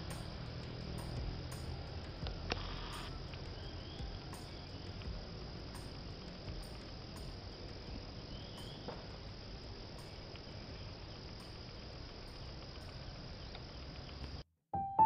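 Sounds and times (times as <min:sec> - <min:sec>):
high-pitched insect chorus: 0:00.0 - 0:14.4
faint low rumble: 0:00.0 - 0:15.0.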